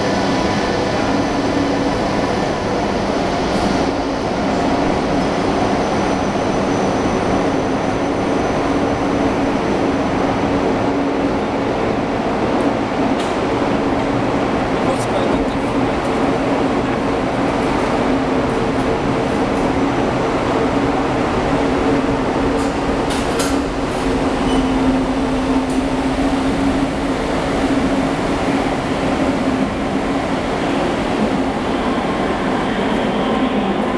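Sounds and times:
train electric hum: 0.0s - 33.9s
wheels rumbling on rails: 0.0s - 33.9s.

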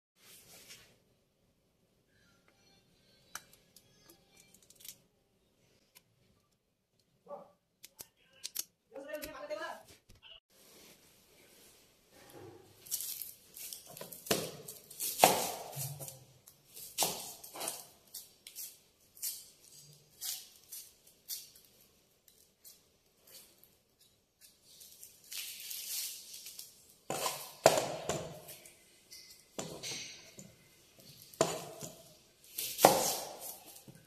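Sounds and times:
onion skins crackling: 12.8s - 22.7s, 23.3s - 27.6s.

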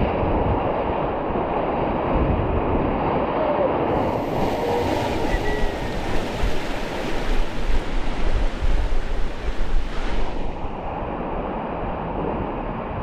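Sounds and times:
wind buffeting microphone: 0.0s - 13.0s
rushing river water: 2.8s - 12.2s.

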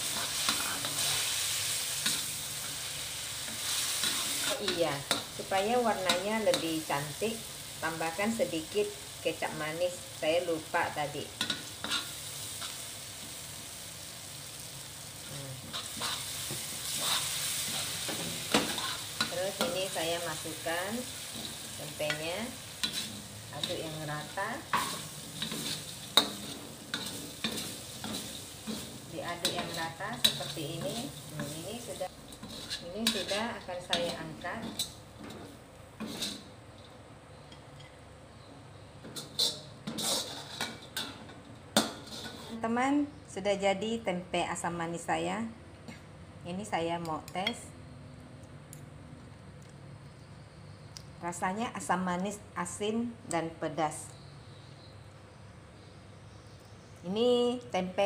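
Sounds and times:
metal spatula scraping wok: 0.0s - 7.0s, 11.4s - 12.9s, 15.6s - 36.6s, 39.0s - 42.6s
sauce sizzling in a wok: 0.0s - 37.4s, 38.3s - 43.1s.

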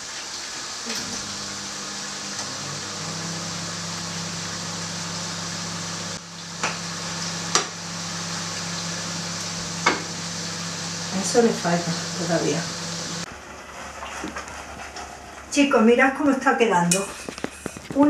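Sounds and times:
sauce sizzling in a pan: 0.7s - 13.3s
low steady hum: 0.9s - 13.3s.

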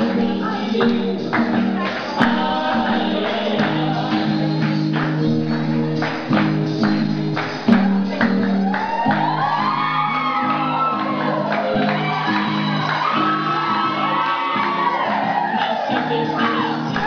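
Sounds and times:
person singing: 0.0s - 6.8s, 7.6s - 17.0s
held melodic notes: 0.0s - 17.0s
rattling percussion beat: 0.6s - 9.5s.

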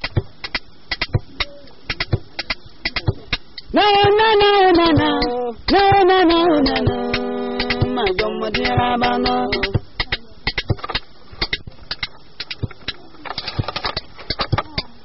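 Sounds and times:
sharp percussion strokes: 0.0s - 14.9s
person singing long notes: 3.7s - 9.9s.

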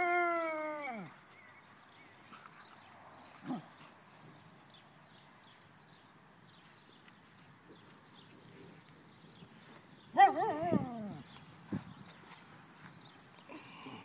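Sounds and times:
puppy yelping: 10.2s - 11.2s.

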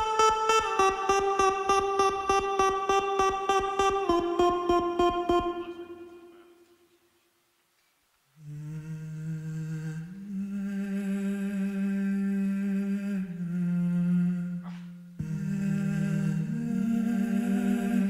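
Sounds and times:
person humming held notes: 8.4s - 18.0s.

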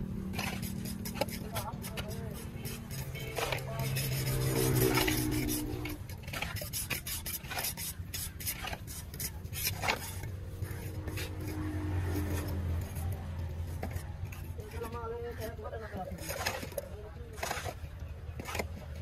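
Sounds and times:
hands scraping wet cement: 0.0s - 19.0s.

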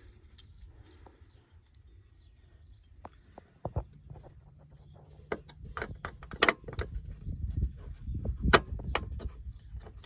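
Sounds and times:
low scraping and handling noise: 0.0s - 10.0s.

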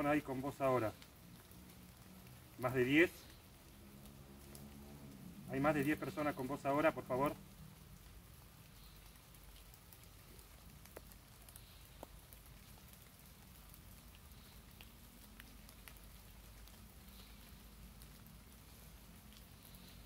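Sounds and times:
faint ticks: 3.2s - 5.3s, 8.0s - 20.0s.

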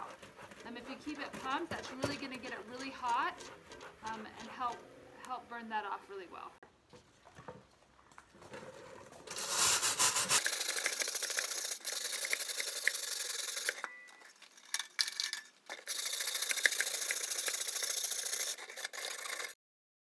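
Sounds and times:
hand tool scraping metal: 0.0s - 4.8s, 9.3s - 13.8s.

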